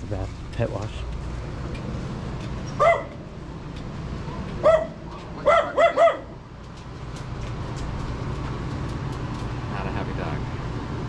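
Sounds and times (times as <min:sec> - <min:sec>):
small dog barking: 0:02.8 - 0:03.2, 0:04.6 - 0:06.4.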